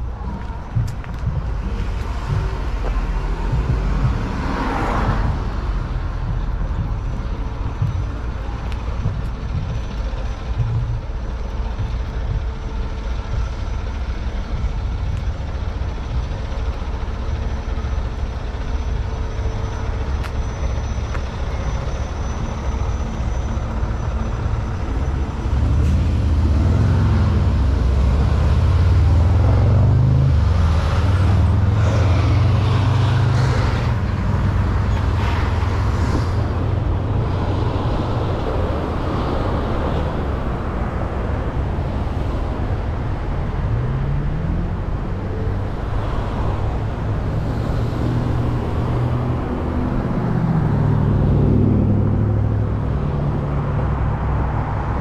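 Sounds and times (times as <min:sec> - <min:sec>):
street traffic rumbling: 0:00.0 - 0:55.0
vehicle engine passing close: 0:24.6 - 0:55.0.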